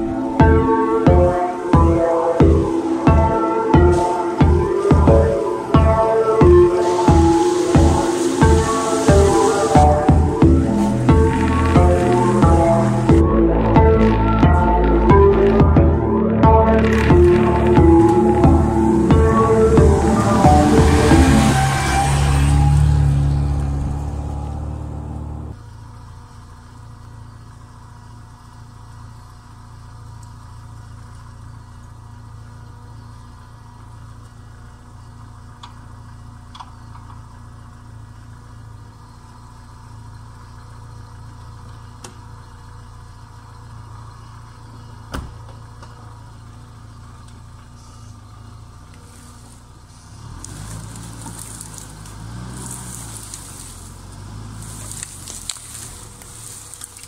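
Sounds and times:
car engine idling: 0.0 - 57.0
vehicle pulling away: 0.0 - 57.0
car door shutting: 45.0 - 46.0.

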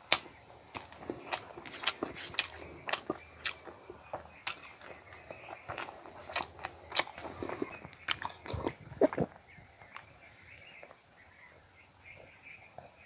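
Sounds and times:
person chewing with wet smacks: 0.0 - 10.1.

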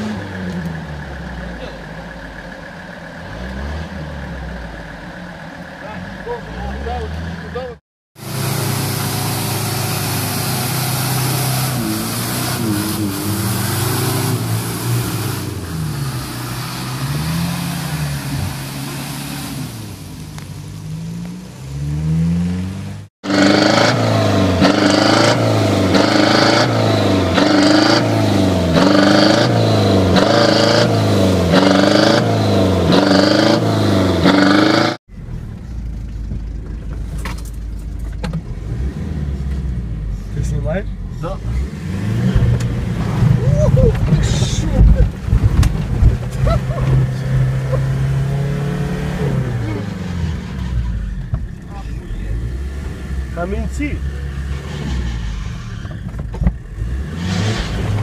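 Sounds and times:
off-road engines revving: 0.0 - 58.0.

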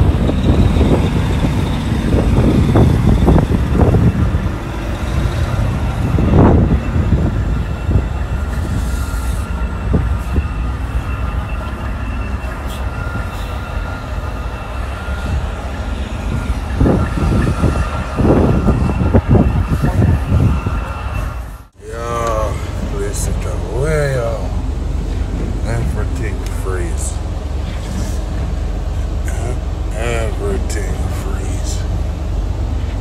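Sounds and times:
truck engine and road noise rumbling: 0.0 - 33.0.

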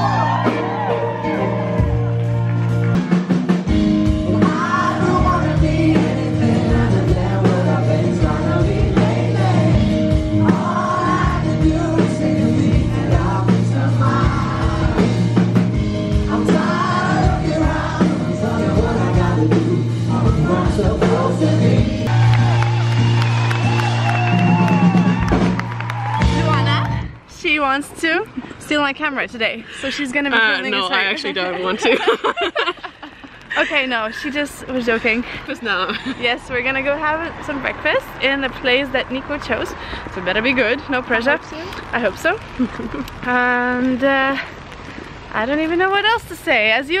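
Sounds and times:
live pop-rock band: 0.0 - 26.8
man singing: 4.2 - 15.1, 16.1 - 22.1.

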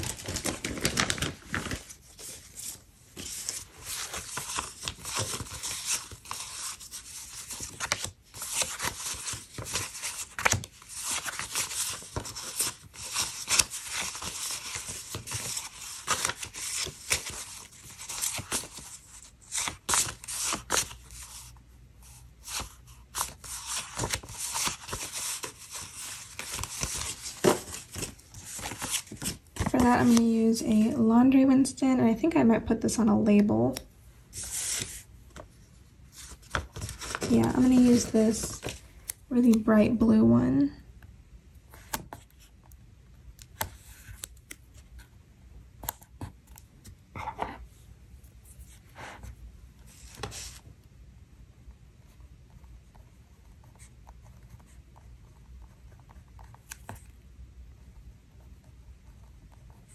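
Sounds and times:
paper sheets rustling: 0.0 - 30.7, 34.3 - 39.7, 49.9 - 50.6.

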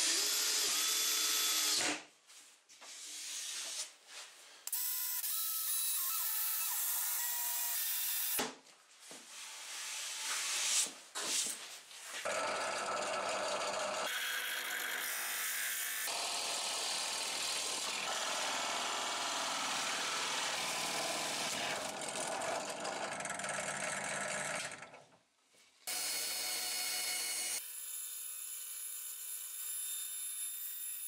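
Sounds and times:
drill press boring wood: 0.0 - 2.0, 12.2 - 25.0
bench saw humming: 12.3 - 24.8.

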